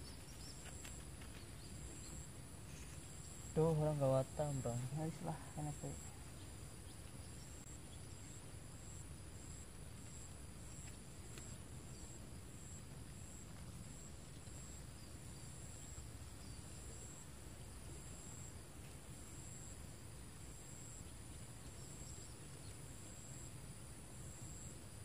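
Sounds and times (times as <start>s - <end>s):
insects calling in high tones: 1.6s - 13.4s
faint ticks: 10.0s - 11.7s, 12.6s - 14.8s.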